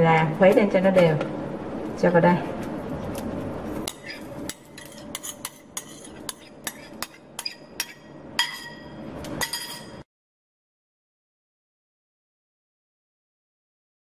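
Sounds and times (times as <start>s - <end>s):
metal spoon clinking on bowl and pan: 3.8s - 10.0s.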